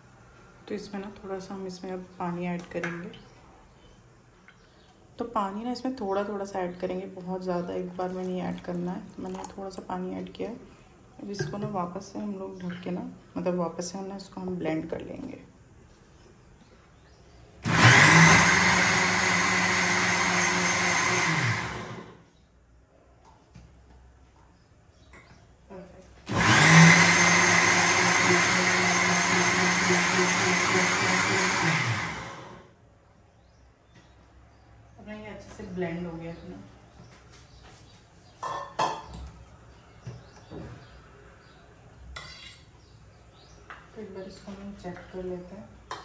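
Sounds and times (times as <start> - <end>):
mixer grinder running: 17.6 - 22.2, 26.3 - 32.6.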